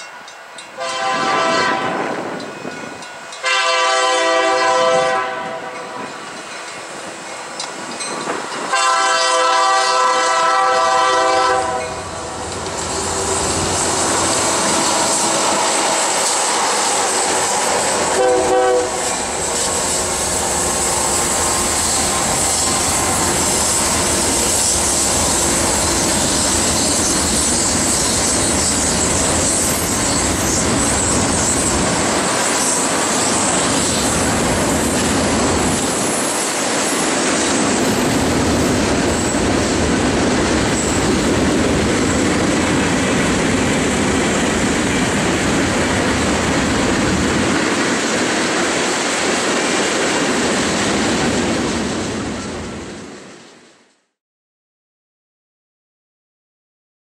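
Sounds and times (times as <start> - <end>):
diesel locomotive engines: 0.0 - 53.1
train horn blasts: 0.8 - 2.2, 3.4 - 6.0, 8.7 - 12.4, 18.0 - 19.3
train wheels clattering on rail: 5.6 - 9.8, 11.7 - 53.0.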